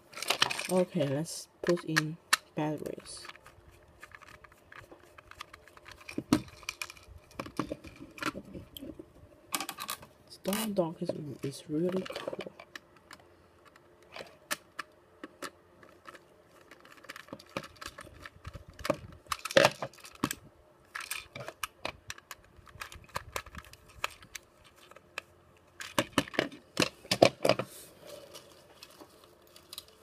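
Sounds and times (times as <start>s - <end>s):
plastic clicking and clatter: 1.6s - 8.8s, 11.9s - 27.7s.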